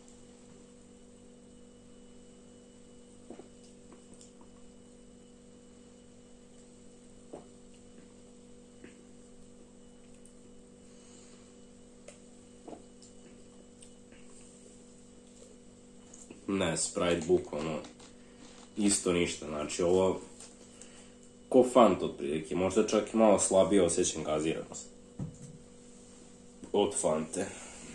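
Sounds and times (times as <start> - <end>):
electrical mains hum: 0.0 - 27.9
man swallowing gulps: 3.2 - 4.8, 7.2 - 9.2, 12.0 - 14.6.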